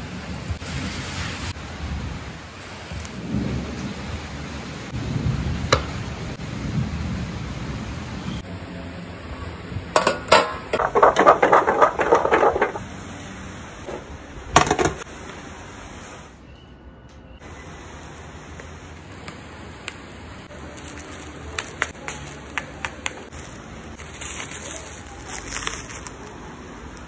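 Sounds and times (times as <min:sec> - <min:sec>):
grill pan lid clattering: 0:10.0 - 0:12.8, 0:13.9 - 0:15.0.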